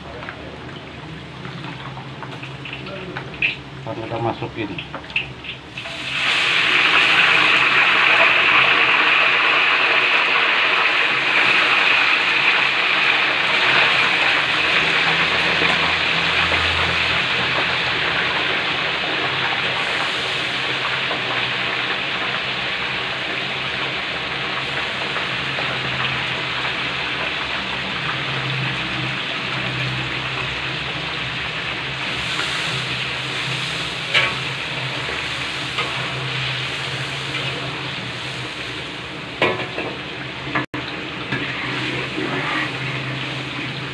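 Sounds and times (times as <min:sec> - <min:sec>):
chicken sizzling in hot oil: 0:00.4 - 0:43.9.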